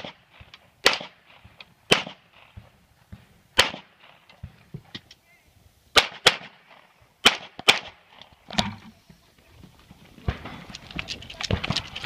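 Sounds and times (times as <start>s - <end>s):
gunshots: 0.0s - 4.2s, 5.9s - 8.2s.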